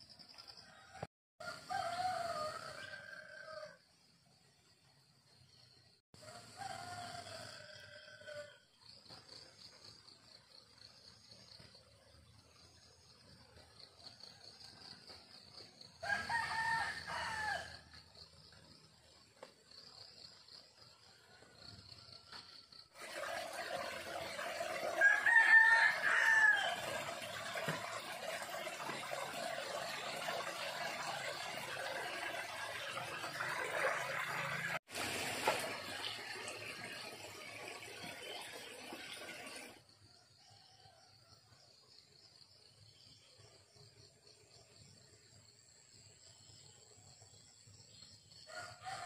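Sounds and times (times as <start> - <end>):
rooster crowing: 0.9 - 3.8, 6.2 - 8.6, 16.0 - 17.9, 24.8 - 27.0, 48.5 - 49.0.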